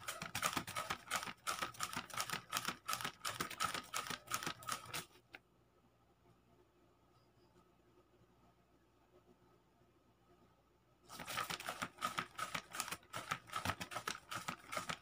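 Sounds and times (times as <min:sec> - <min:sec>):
banknotes flapping: 0:00.0 - 0:05.1, 0:11.1 - 0:15.0.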